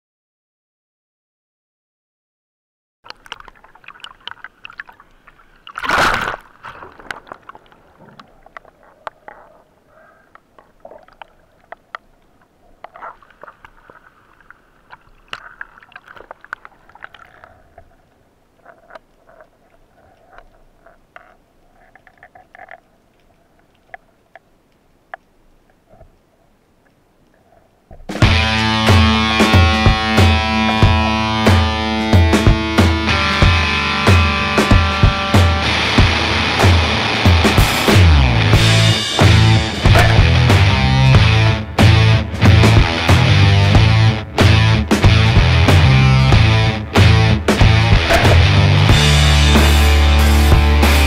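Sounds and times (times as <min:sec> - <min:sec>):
sea water sloshing and splashing: 0:03.1 - 0:24.3
small clicks and crackles: 0:03.1 - 0:28.1.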